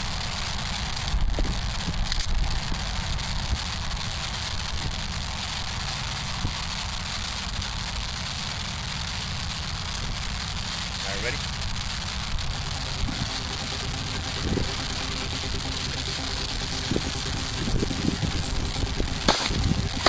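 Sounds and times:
wind on microphone: 16.4s - 20.0s.

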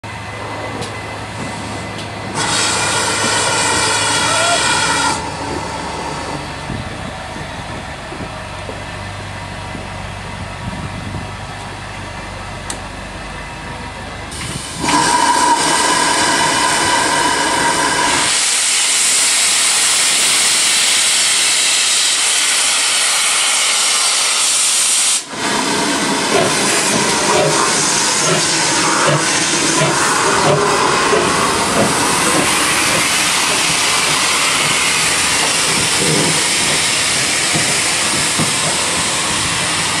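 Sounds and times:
steam engine low hum: 0.0s - 40.0s
steam engine exhaust beats: 0.1s - 40.0s
loud hiss of steam: 1.8s - 6.7s, 14.3s - 40.0s
steam locomotive whistle: 2.4s - 5.4s, 14.8s - 25.8s.

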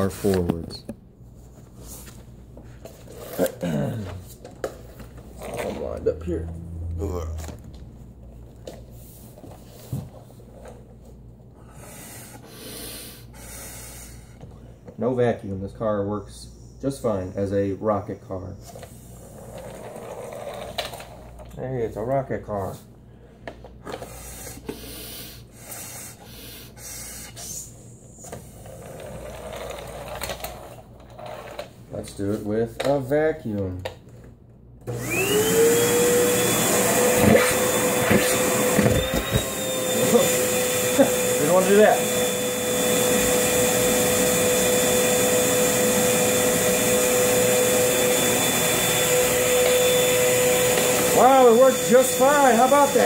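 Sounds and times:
vacuum cleaner running: 1.8s - 10.9s, 16.3s - 21.4s, 23.9s - 30.8s, 34.8s - 53.0s.

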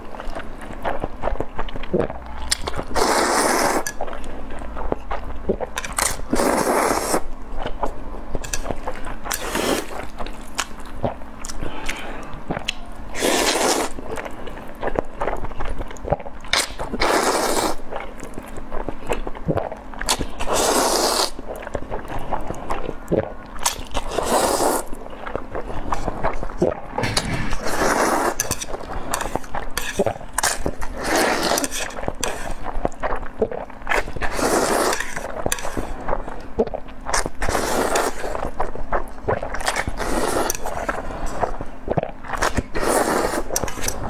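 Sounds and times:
wet chewing: 0.0s - 44.0s
person slurping noodles: 1.9s - 4.0s, 5.5s - 7.3s, 9.3s - 10.0s, 11.8s - 14.1s, 17.0s - 17.8s, 19.5s - 21.4s, 24.0s - 25.0s, 26.6s - 32.7s, 33.4s - 36.0s, 37.4s - 38.5s, 39.3s - 44.0s.

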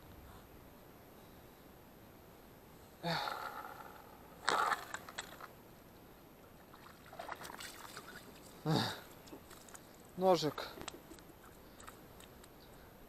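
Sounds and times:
person grunting: 3.0s - 4.0s, 8.7s - 9.0s
fish flopping on wet ice: 4.4s - 5.5s, 6.7s - 10.1s
fish splashing out of water: 4.4s - 5.5s, 6.7s - 9.2s.

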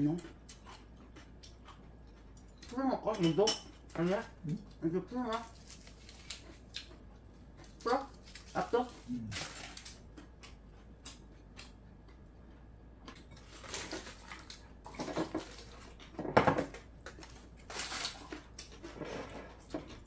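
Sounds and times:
chopsticks and dishes clinking: 2.1s - 4.3s
aluminium foil crinkling: 5.3s - 6.6s, 7.6s - 10.0s, 13.4s - 15.9s, 17.1s - 18.4s.

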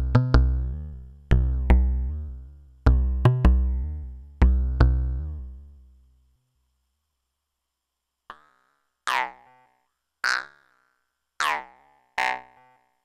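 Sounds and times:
synthesizer bass line plucky notes: 0.0s - 5.9s.

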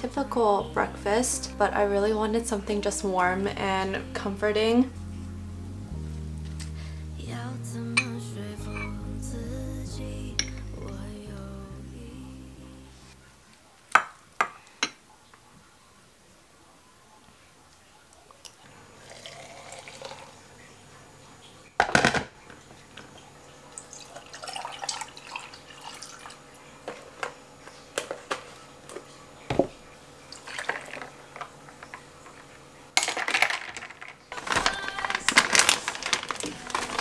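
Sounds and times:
coffee dripping and pouring: 18.4s - 27.4s, 29.0s - 32.6s
plastic packet crinkling: 33.0s - 37.0s.

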